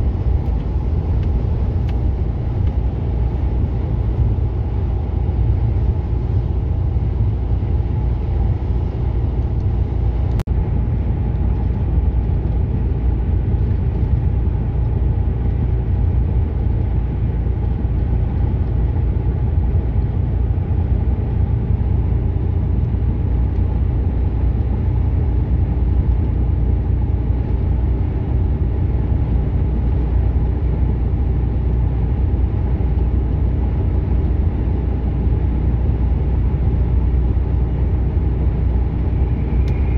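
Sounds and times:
lorry engine and tyres droning: 0:00.0 - 0:39.9.

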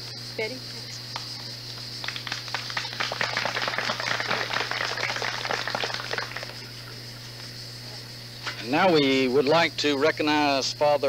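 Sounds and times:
low hum and hiss: 0:00.0 - 0:11.0
small crowd applauding: 0:02.0 - 0:06.9.

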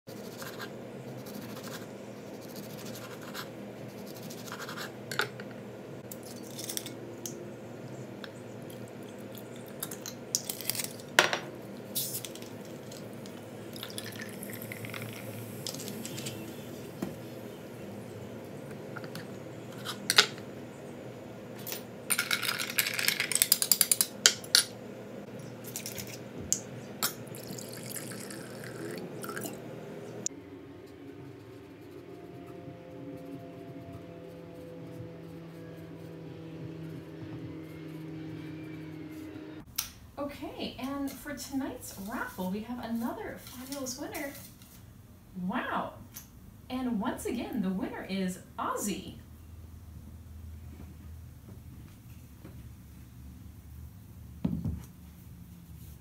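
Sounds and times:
low steady hum: 0:00.1 - 0:56.0
liquid pouring into glass: 0:13.7 - 0:15.8, 0:27.0 - 0:29.6.

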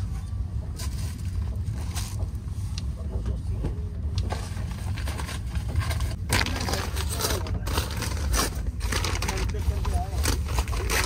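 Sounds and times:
train coach rumble: 0:00.0 - 0:10.8
packaging crinkling: 0:06.1 - 0:11.0.

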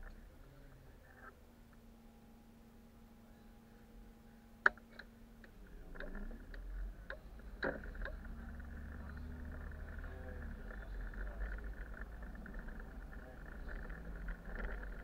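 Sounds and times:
sharp clicks and ticks: 0:04.6 - 0:15.0.

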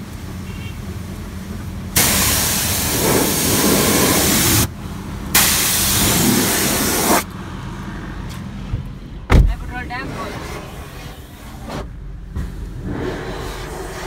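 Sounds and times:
high-pressure spray gun hissing: 0:02.0 - 0:04.7, 0:05.3 - 0:07.2.

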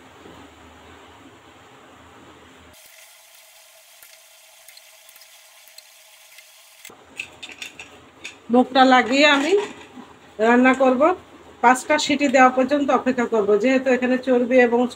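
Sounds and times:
steady hiss: 0:02.8 - 0:06.9.

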